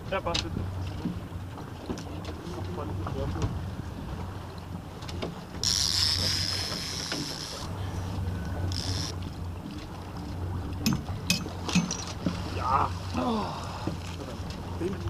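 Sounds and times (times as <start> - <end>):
boat engine running: 0.0 - 15.0
fishing reel drag buzzing: 5.6 - 7.7, 8.7 - 9.2.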